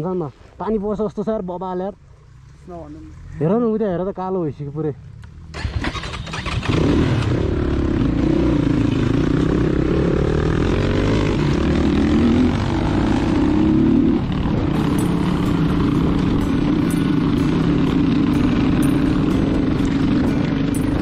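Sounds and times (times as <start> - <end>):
dirt bike engine revving: 5.5 - 21.0.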